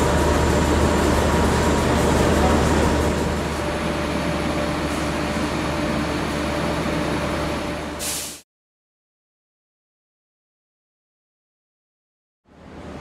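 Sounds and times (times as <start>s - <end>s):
diesel locomotive idling: 0.0s - 8.3s
short hiss: 8.0s - 8.4s.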